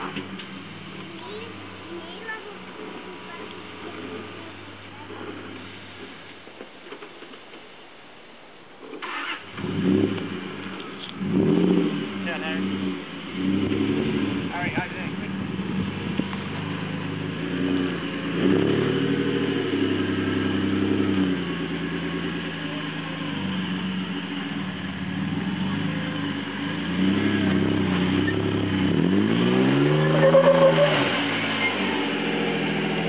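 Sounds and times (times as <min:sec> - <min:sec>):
engine revving under load: 0:09.0 - 0:33.0.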